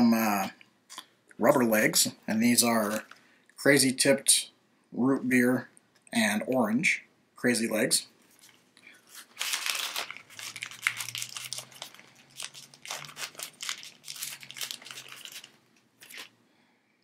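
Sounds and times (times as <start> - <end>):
plastic packet crinkling: 8.3 - 16.4.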